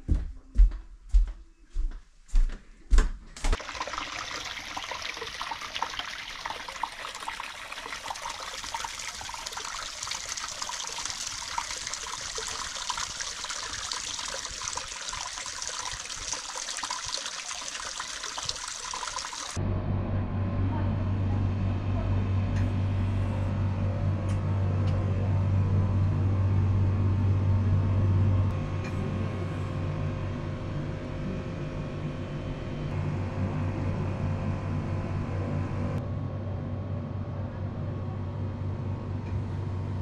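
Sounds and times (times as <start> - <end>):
footsteps on wooden floor: 0.0 - 3.6
running water splashing: 3.6 - 19.6.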